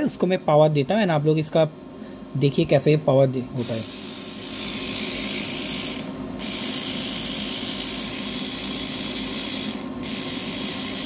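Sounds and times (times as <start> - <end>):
electric motor whirring: 3.6 - 11.0.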